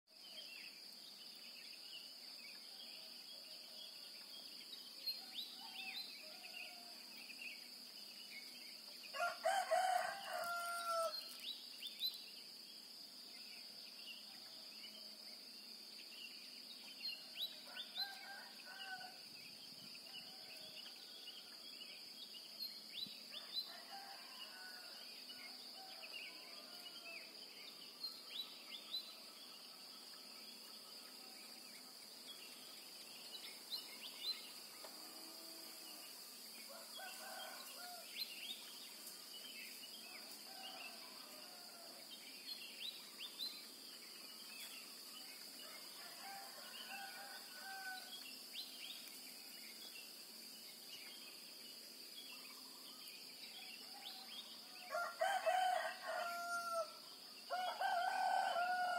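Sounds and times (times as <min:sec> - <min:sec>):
high insect drone: 0:00.2 - 0:58.9
rooster crowing: 0:09.1 - 0:11.2, 0:23.7 - 0:25.0, 0:46.0 - 0:48.1, 0:54.8 - 0:58.9.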